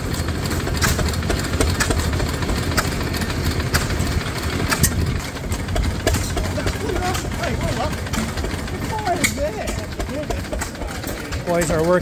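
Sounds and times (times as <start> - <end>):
engine knocking: 0.0 - 12.0
stationary engine throbbing: 0.0 - 12.0.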